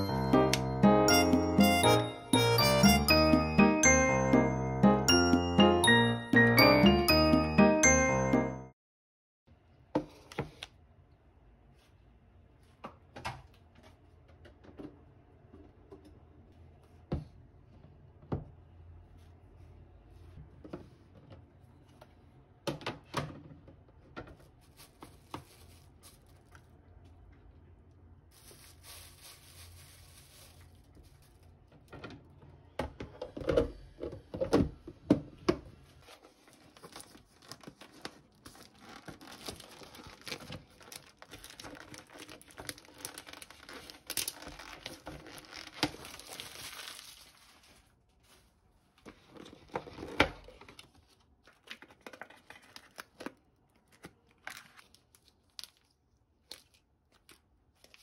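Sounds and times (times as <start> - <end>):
plastic sachets rustling: 24.6 - 26.8, 28.3 - 31.7, 36.0 - 48.6
plastic wrap crinkling and tearing: 24.6 - 26.8, 28.3 - 31.7, 36.0 - 48.6, 49.4 - 58.0.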